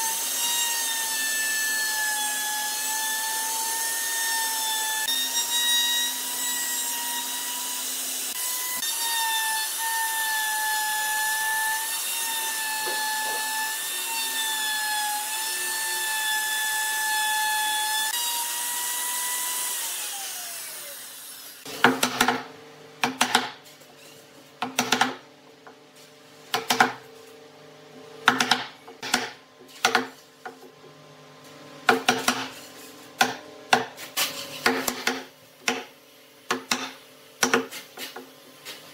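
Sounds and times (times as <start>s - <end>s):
router cutting wood: 0.0s - 21.8s.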